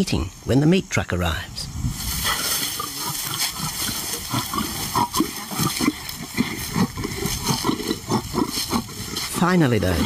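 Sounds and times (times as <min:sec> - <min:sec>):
lions growling: 0:02.2 - 0:10.0.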